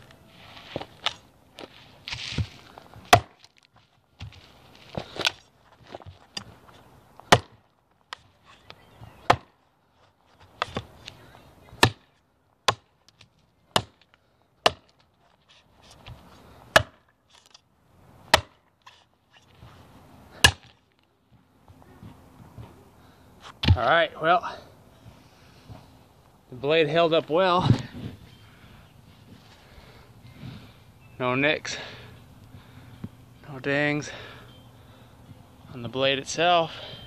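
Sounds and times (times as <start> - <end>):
blade chopping into a log: 3.1 - 3.5, 7.3 - 7.6, 9.2 - 9.5, 11.8 - 12.1, 12.7 - 12.9, 13.7 - 15.0, 16.7 - 17.0, 18.3 - 18.6, 20.4 - 20.8.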